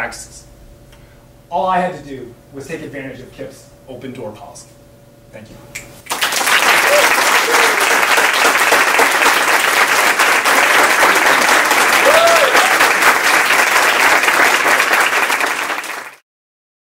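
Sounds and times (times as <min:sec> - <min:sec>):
audience applauding loudly: 0:06.1 - 0:16.2.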